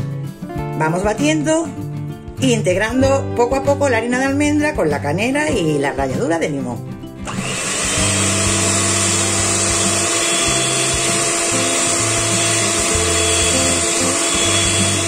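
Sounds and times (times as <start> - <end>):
electric hand mixer running: 7.2 - 15.0.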